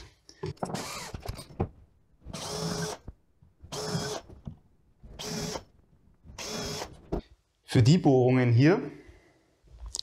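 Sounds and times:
cordless drill bursts: 2.3s - 3.0s, 3.7s - 4.3s, 5.2s - 5.7s, 6.4s - 7.0s.

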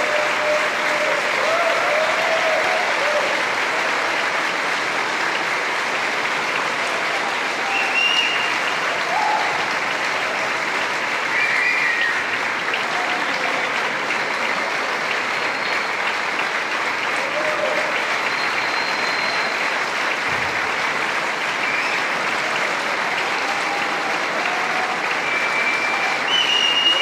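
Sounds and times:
audience applauding: 0.0s - 27.0s
short whistles: 7.7s - 8.6s, 18.3s - 19.6s, 21.7s - 22.0s, 25.2s - 27.0s.

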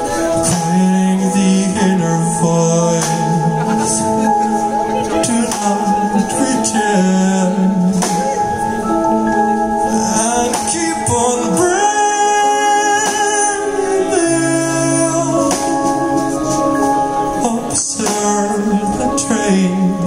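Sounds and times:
keyboards: 0.0s - 20.0s
man singing: 0.0s - 20.0s
drum and cymbal hits: 7.8s - 8.8s.

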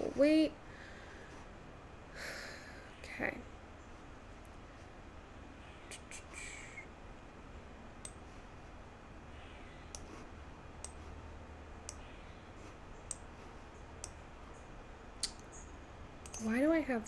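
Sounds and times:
faint room hum: 0.0s - 17.0s
computer mouse clicking: 9.9s - 10.2s, 13.0s - 13.3s, 14.0s - 14.2s, 16.2s - 16.5s.

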